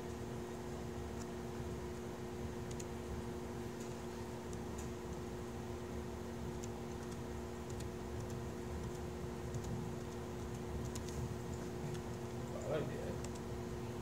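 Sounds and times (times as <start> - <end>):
low room hum: 0.0 - 14.0
keyboard typing: 2.6 - 2.9, 6.4 - 13.5.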